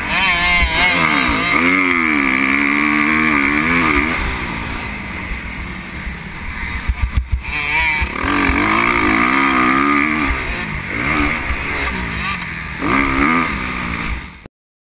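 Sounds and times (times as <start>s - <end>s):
sharp thumps: 0.0s - 4.3s, 6.7s - 13.2s
dirt bike engine revving: 0.0s - 14.5s.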